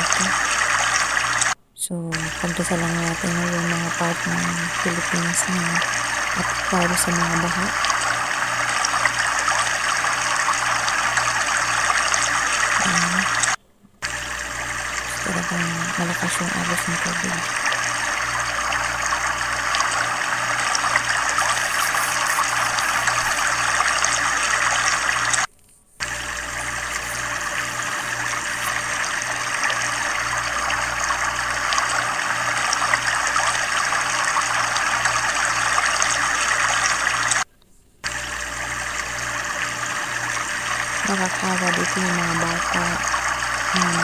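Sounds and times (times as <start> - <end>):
floodwater rushing: 0.0 - 1.6, 14.9 - 25.5, 26.1 - 37.4.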